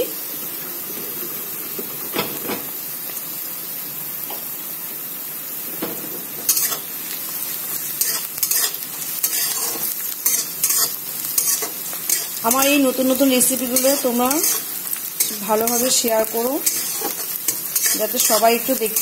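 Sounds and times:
onion and garlic sizzling in oil: 0:00.0 - 0:19.0
utensil scraping a pan: 0:06.4 - 0:06.9, 0:08.0 - 0:12.8, 0:13.6 - 0:19.0.

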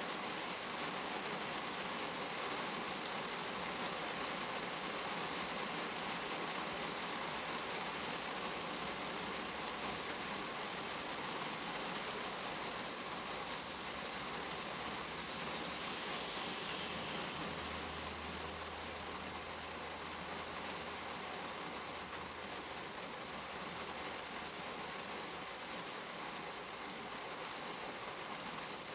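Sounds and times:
rain on car windshield: 0:00.0 - 0:28.9
low hum: 0:12.1 - 0:21.3.

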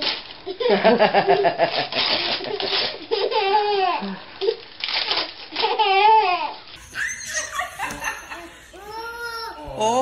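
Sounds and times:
baby laughing and squealing: 0:05.7 - 0:09.8.

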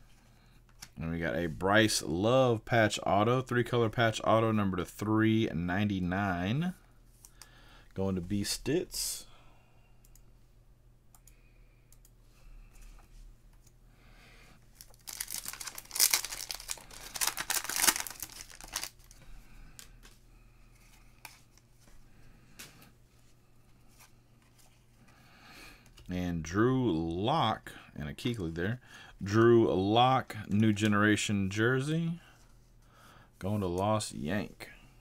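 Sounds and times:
foil wrapper tearing and crinkling: 0:14.8 - 0:19.1.

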